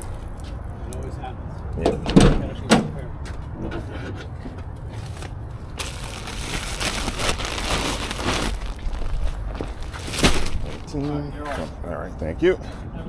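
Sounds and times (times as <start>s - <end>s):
plastic bags crinkling: 5.1s - 11.0s.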